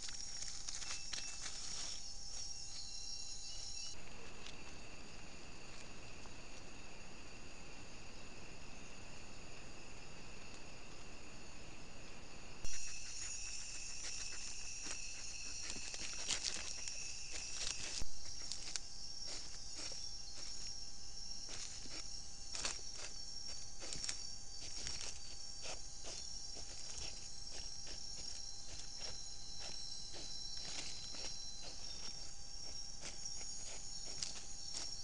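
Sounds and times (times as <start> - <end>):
rustling in leaf litter: 0.0 - 2.8, 12.7 - 35.0
insects trilling and buzzing: 0.0 - 35.0
lower insect trill: 0.0 - 35.0.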